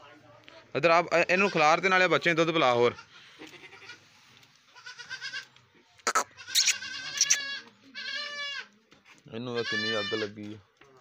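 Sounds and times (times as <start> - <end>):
goats bleating: 2.9 - 4.0, 4.7 - 5.5, 6.1 - 8.7, 9.6 - 10.3.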